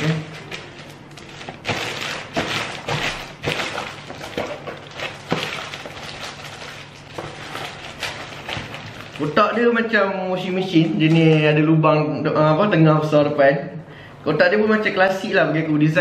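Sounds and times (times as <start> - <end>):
plastic bag crinkling: 0.0 - 11.6.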